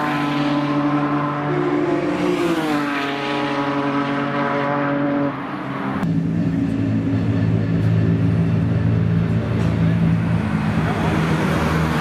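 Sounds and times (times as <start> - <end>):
race car engine at high revs: 0.0 - 12.0
turbocharged race car engine: 0.0 - 12.0.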